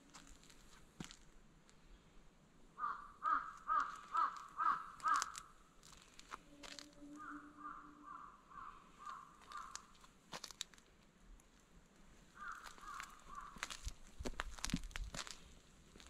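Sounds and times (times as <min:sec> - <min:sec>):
crow cawing: 0:02.8 - 0:05.5, 0:06.5 - 0:10.0, 0:12.4 - 0:13.8
dry leaves crunching: 0:03.7 - 0:07.3, 0:09.0 - 0:10.9, 0:12.2 - 0:16.0.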